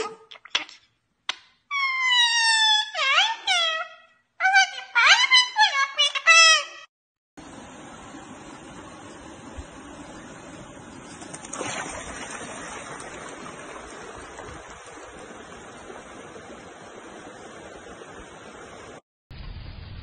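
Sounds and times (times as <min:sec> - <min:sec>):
rocky stream rushing: 0:09.6 - 0:19.0.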